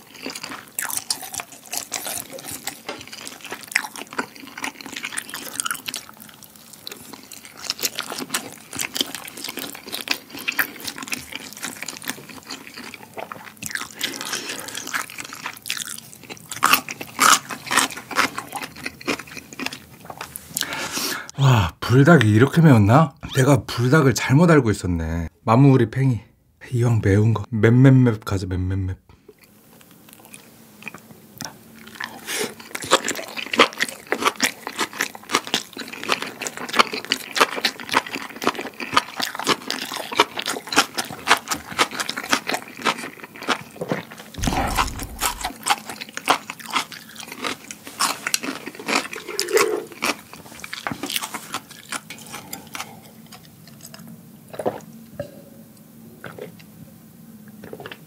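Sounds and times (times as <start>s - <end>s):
low thump: 44.4s - 45.5s
wet chewing mouth clicks: 44.4s - 45.5s.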